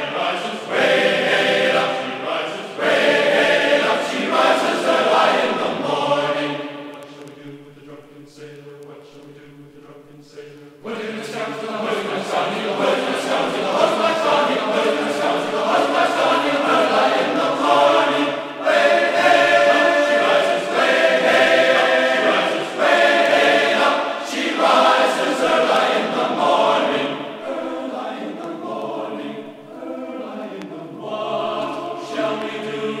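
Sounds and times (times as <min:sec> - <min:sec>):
choir singing held chords: 0:00.0 - 0:33.0.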